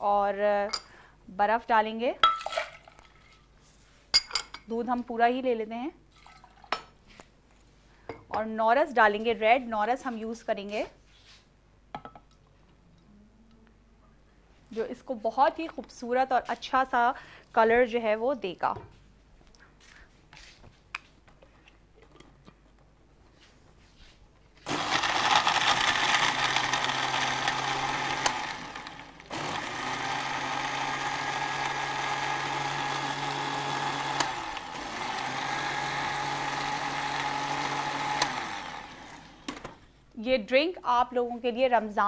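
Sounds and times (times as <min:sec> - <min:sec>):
electric blender motor: 0:24.7 - 0:39.8.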